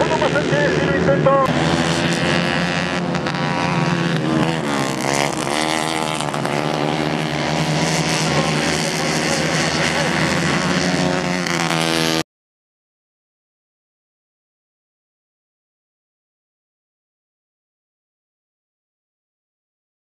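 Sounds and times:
racing kart engines: 0.0 - 12.2.

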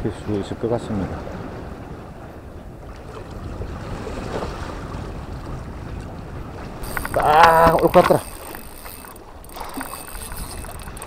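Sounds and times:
wind buffeting microphone: 0.0 - 11.0
sea water washing against concrete: 6.5 - 11.0.

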